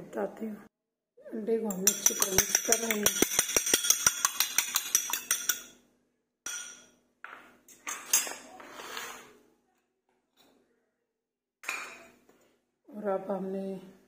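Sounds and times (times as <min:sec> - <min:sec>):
egg beaten in glass bowl: 0:01.6 - 0:05.8
glass clink: 0:01.8 - 0:05.8, 0:06.5 - 0:07.0.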